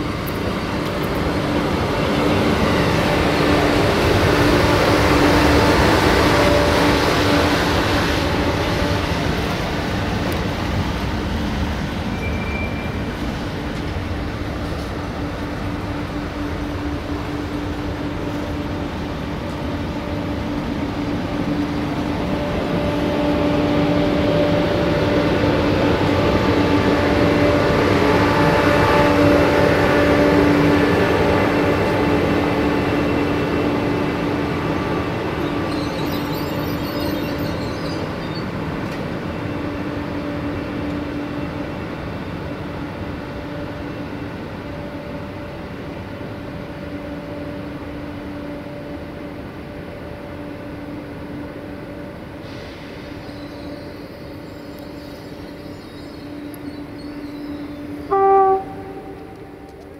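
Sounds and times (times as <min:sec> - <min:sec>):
train electric whine: 0:00.0 - 0:59.9
train running noise: 0:00.0 - 0:59.9
short horn toot: 0:58.1 - 0:59.8.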